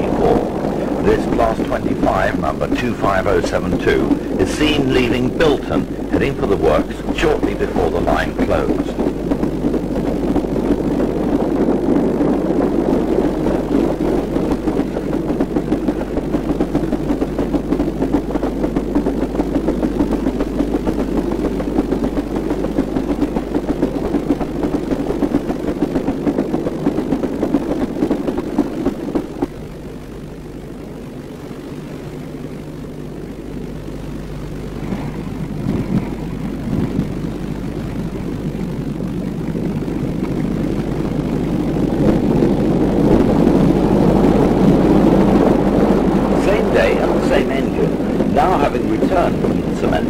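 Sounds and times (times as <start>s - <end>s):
diesel locomotive engine rumbling: 0.0s - 12.4s, 45.2s - 50.0s.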